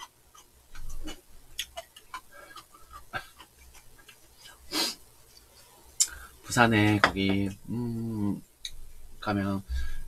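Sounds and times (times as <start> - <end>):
chopsticks clicking against bowls: 0.0 - 4.6
chewing: 0.0 - 4.7.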